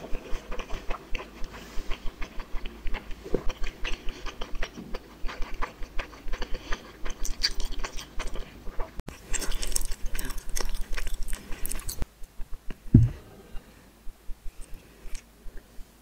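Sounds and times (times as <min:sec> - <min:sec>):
wet chewing noodles: 0:00.0 - 0:12.8
low thump: 0:12.9 - 0:13.3.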